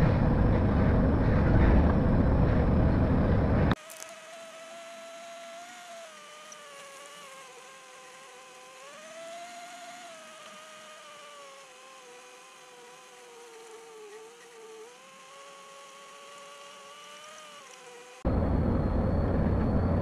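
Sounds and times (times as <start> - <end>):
truck engine whine inside cab: 0.0 - 3.8, 18.2 - 20.0.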